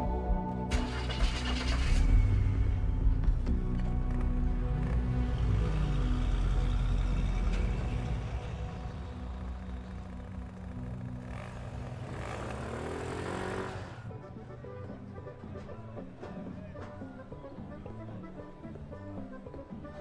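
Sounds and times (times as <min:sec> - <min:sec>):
background music: 0:00.0 - 0:20.0
motor scooter passing: 0:04.0 - 0:14.3.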